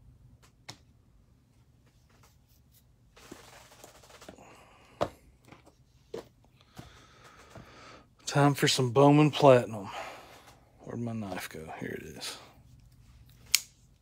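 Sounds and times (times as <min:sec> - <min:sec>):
packaging rustling: 0:03.1 - 0:04.4.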